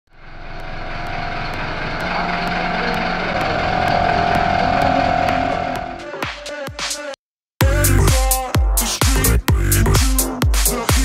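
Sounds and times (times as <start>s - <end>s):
electric air compressor running: 0.1s - 6.1s.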